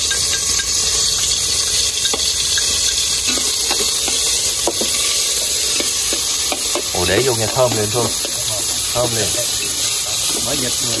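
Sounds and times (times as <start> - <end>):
garlic and onion sizzling: 0.0 - 11.0
stirring utensil knocks: 2.1 - 9.4.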